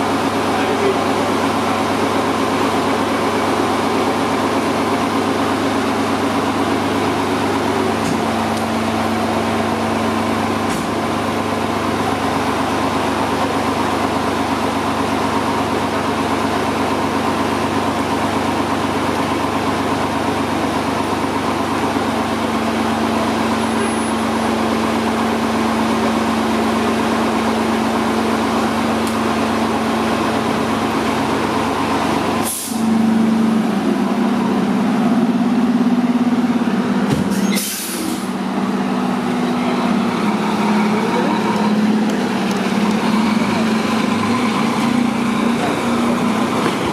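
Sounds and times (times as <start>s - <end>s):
diesel fire engine idling: 0.0s - 46.9s
short sharp hisses: 32.4s - 32.8s, 37.3s - 38.3s.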